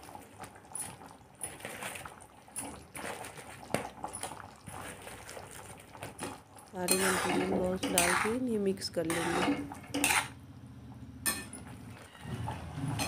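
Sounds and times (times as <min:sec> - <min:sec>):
gravy bubbling: 0:00.0 - 0:13.0.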